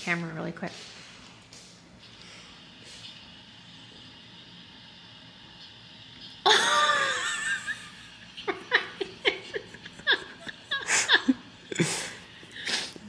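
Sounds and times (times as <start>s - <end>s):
person laughing: 6.5s - 12.9s.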